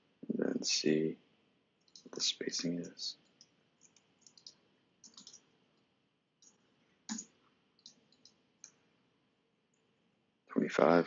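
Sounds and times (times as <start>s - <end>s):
keyboard and mouse clicks: 1.8s - 2.1s, 2.9s - 5.5s, 6.4s - 8.8s.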